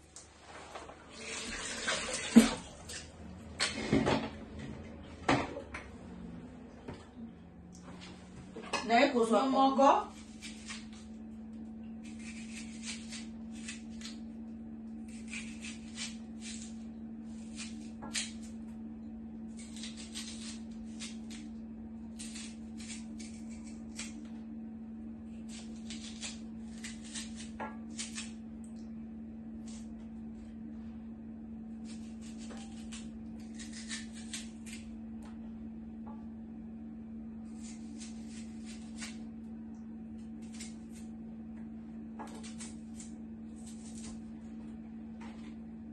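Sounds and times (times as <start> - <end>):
steady low hum: 0.0 - 45.9
knife cutting onion: 10.0 - 11.2, 12.0 - 18.6, 19.5 - 24.3, 25.3 - 28.4, 31.7 - 35.0, 37.4 - 39.3, 40.2 - 41.2, 42.2 - 44.2.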